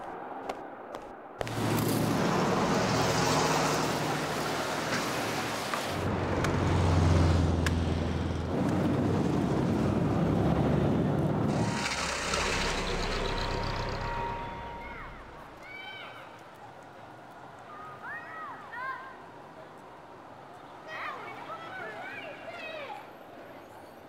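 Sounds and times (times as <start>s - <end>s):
cars passing close by: 1.4s - 15.8s.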